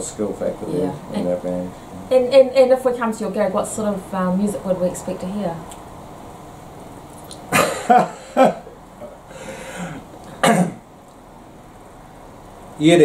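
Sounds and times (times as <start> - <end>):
people laughing: 7.6 - 8.7.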